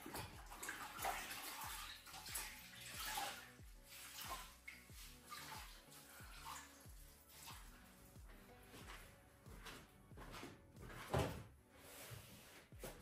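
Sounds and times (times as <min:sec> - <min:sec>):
water sloshing in a bucket: 0:00.0 - 0:07.8
background music with beat: 0:00.0 - 0:13.0.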